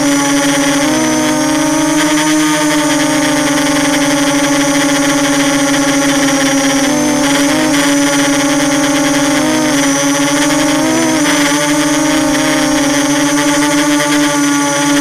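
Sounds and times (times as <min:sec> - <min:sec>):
quadcopter motors whining: 0:00.0 - 0:15.0.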